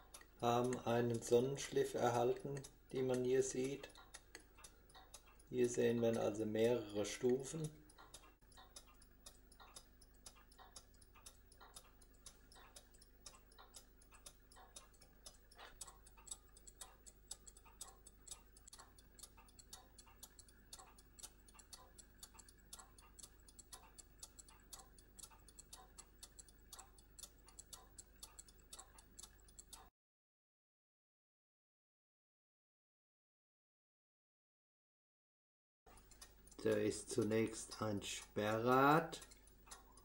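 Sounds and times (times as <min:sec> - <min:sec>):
pocket watch ticking: 0:00.0 - 0:29.9, 0:35.9 - 0:40.0.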